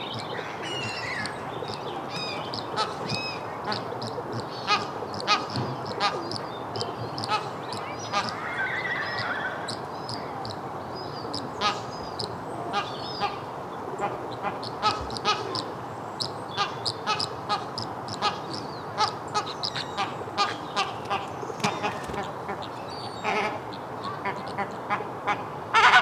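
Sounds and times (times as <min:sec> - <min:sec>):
low hubbub of flock: 0:00.0 - 0:26.0
flamingos honking: 0:02.1 - 0:09.6, 0:16.5 - 0:26.0.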